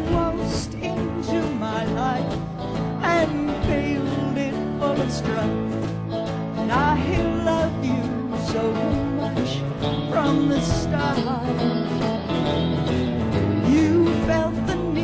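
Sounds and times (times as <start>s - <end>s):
acoustic guitar: 0.0s - 15.0s
woman singing: 6.9s - 12.0s.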